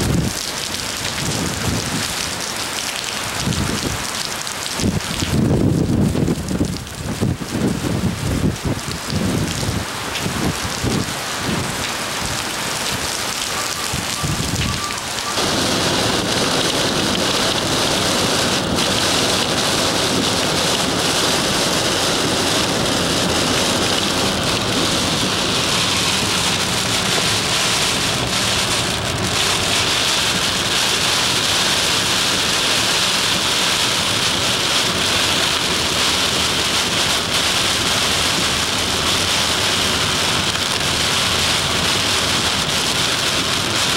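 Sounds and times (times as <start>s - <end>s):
dense rain hiss: 0.0s - 43.9s
heavy rain: 0.0s - 43.9s
wind buffeting microphone: 3.4s - 4.0s, 4.8s - 12.4s, 13.8s - 14.8s, 15.4s - 32.6s.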